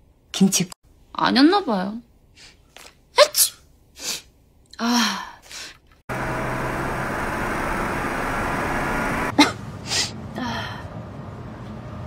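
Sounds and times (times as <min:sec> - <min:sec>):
rushing background noise: 0:06.1 - 0:10.3.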